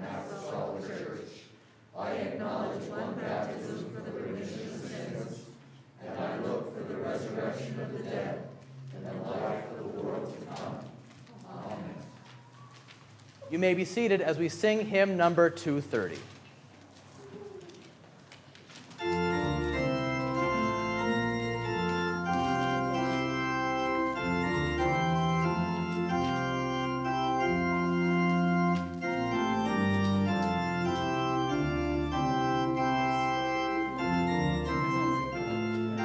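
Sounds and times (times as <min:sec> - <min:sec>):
church organ playing a hymn: 0:18.9 - 0:36.0.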